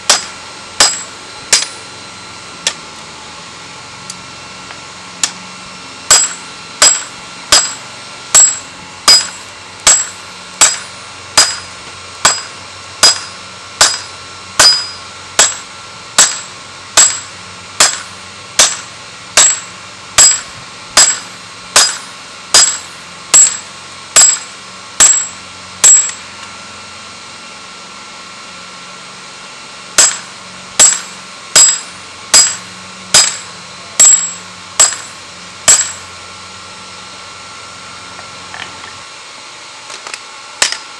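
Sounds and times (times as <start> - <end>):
hammer striking steel on anvil: 0.0 - 1.9, 6.1 - 26.3, 30.0 - 36.1, 40.6 - 40.9.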